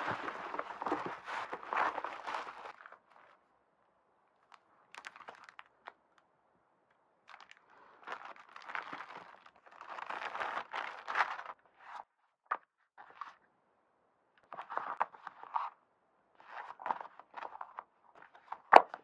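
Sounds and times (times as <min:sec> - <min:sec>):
packaging crinkling and rustling: 0:00.0 - 0:03.4, 0:04.4 - 0:06.0, 0:07.3 - 0:12.0.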